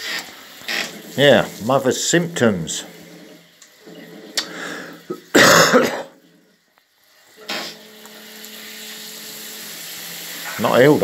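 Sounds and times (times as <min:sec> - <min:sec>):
man coughing: 0:05.1 - 0:06.2.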